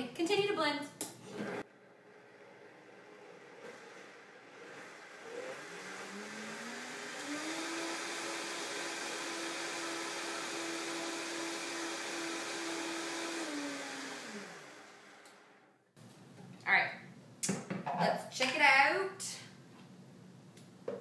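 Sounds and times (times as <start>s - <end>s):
blender motor running: 1.2s - 15.7s.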